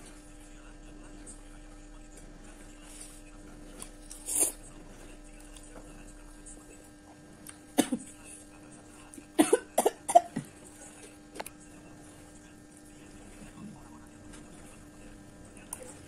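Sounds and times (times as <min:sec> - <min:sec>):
woman coughing: 0:07.8 - 0:08.1, 0:09.4 - 0:10.4.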